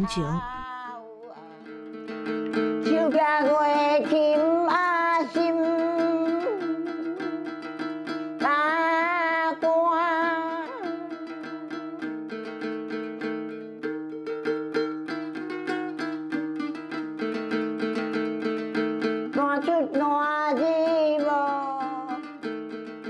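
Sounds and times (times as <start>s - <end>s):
elderly woman singing: 0.0s - 12.0s, 19.2s - 22.5s
plucked lute notes: 0.0s - 23.0s.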